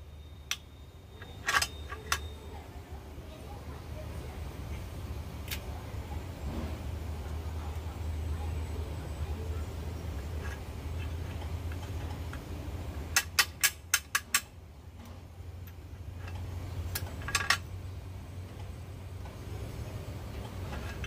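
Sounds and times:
steady low hum: 0.0 - 21.0
seed press clicking and snapping: 10.5 - 17.7.

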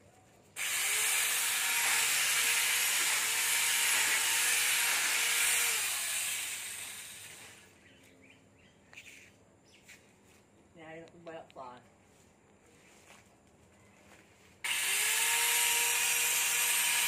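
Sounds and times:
electric chainsaw cutting branches: 0.6 - 7.7, 14.6 - 17.0.

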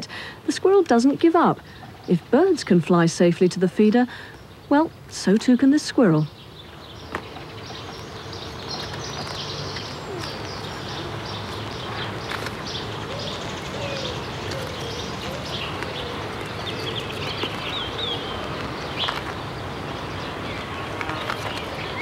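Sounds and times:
small birds chirping: 0.0 - 22.0
pigeon cooing: 9.8 - 12.3, 13.0 - 17.5.

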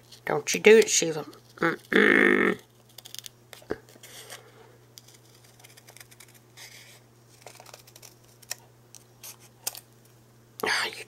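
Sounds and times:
scissors snipping paper: 7.3 - 8.6.

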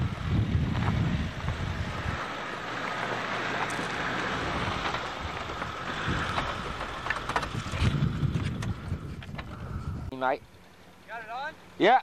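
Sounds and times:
wind on microphone: 0.0 - 2.3, 4.4 - 10.2
car driving on gravel: 0.0 - 11.8.

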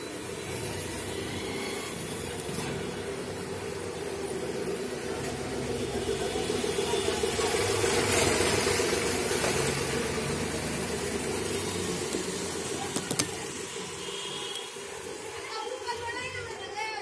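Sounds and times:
motor hum with hiss: 0.0 - 5.8.

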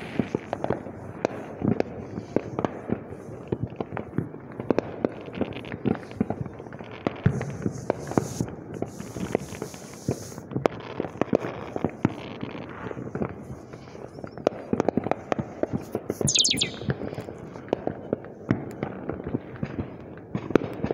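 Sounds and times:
falling firework whistle: 16.3 - 17.0.

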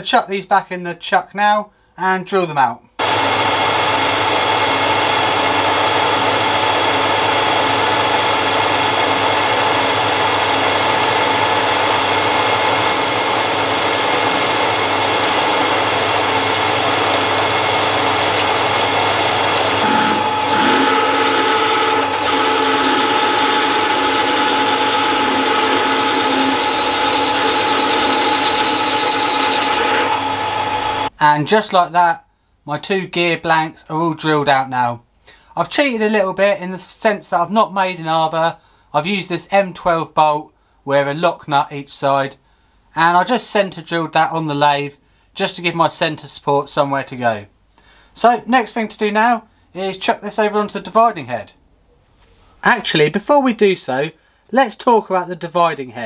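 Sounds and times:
drill cutting metal: 3.0 - 31.1
lathe motor and gear whine: 3.0 - 31.1.

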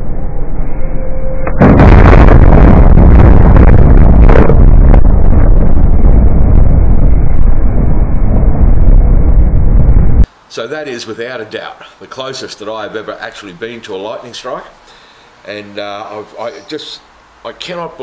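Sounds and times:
thunder crackling roll: 1.6 - 10.3.

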